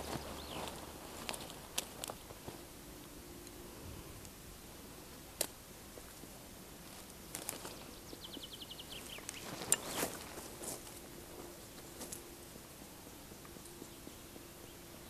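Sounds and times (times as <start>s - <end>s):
songbird trilling: 0.0s - 0.8s, 7.8s - 10.1s
footsteps on dry grass: 0.0s - 2.8s, 9.0s - 12.4s.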